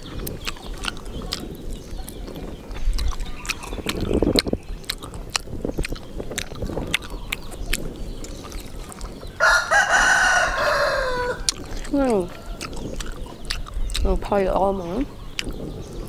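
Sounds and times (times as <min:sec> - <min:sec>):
person chewing meat off bone: 0:00.0 - 0:10.4, 0:11.4 - 0:14.2, 0:15.2 - 0:15.8
rooster crowing: 0:09.4 - 0:11.5.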